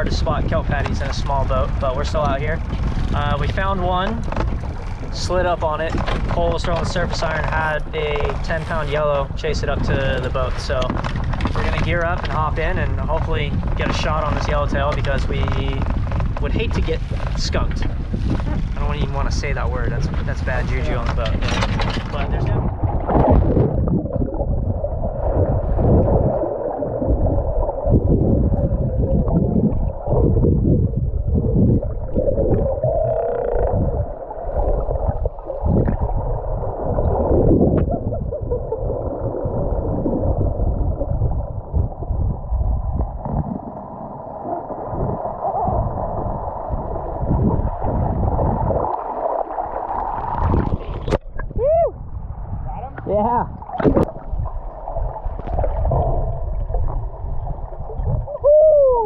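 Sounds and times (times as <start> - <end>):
underwater water rushes: 0.0 - 59.0
water gurgling: 0.0 - 59.0.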